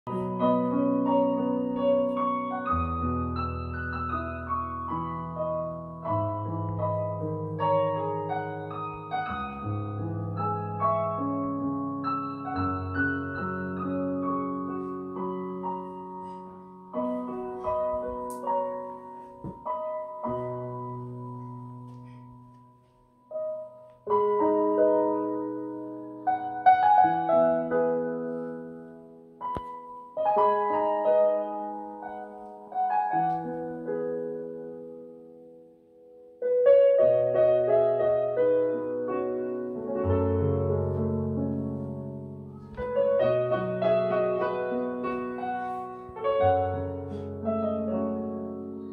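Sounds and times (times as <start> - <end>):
piano music through loudspeakers: 0.0 - 48.9.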